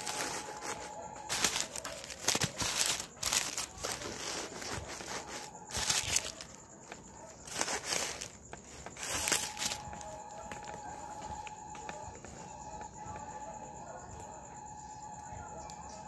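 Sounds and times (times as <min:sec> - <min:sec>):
packing material crinkling: 0:00.0 - 0:12.0.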